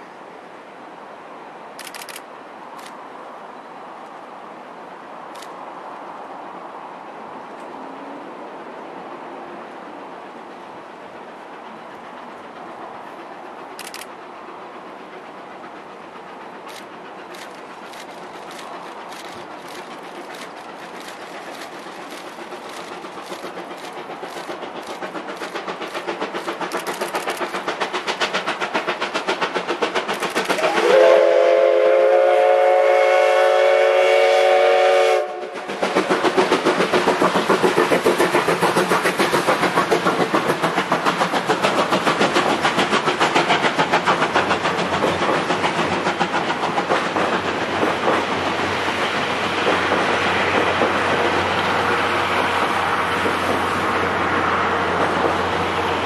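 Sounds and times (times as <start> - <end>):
steam locomotive chuffing: 1.8 - 3.0, 8.9 - 56.0
wheels clicking over rail joints: 10.3 - 30.9, 35.5 - 56.0
steam whistle blast: 30.6 - 35.6.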